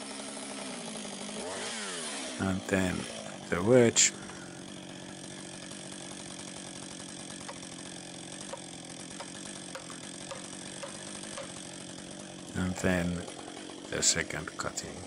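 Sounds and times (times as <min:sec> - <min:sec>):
chainsaw idling: 0:00.0 - 0:15.0.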